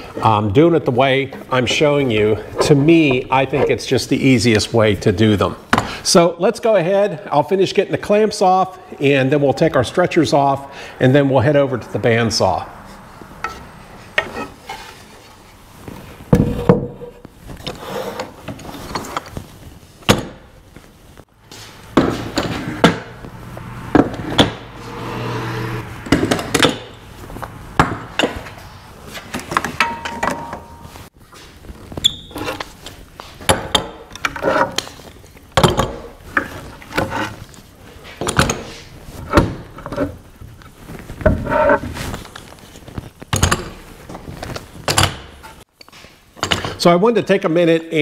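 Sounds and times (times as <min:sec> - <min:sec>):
wooden clamps knocking and clacking: 0:29.3 - 0:30.8, 0:33.4 - 0:35.0, 0:35.6 - 0:37.1.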